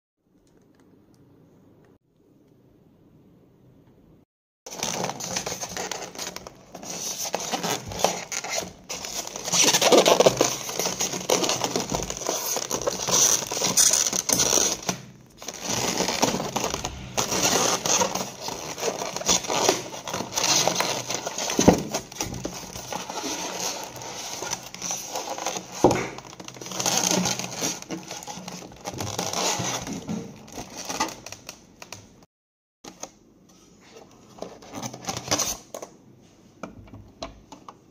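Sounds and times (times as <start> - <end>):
foam blocks scraping and squeaking: 4.7 - 30.0.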